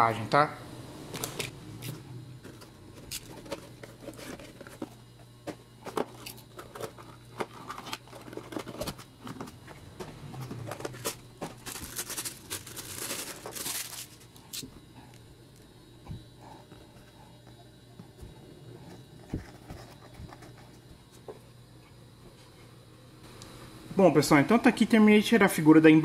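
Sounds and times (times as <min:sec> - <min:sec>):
cardboard tearing and rustling: 0:10.3 - 0:14.6.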